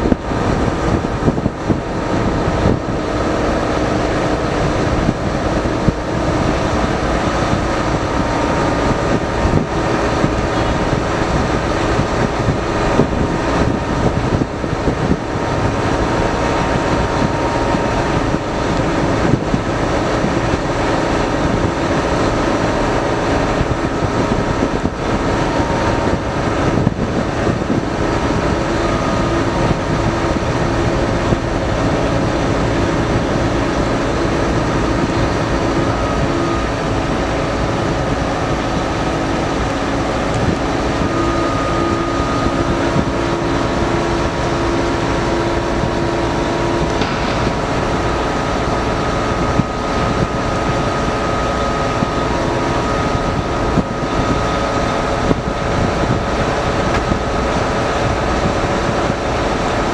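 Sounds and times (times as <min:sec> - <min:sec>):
boat diesel engine running: 0:00.0 - 0:59.9.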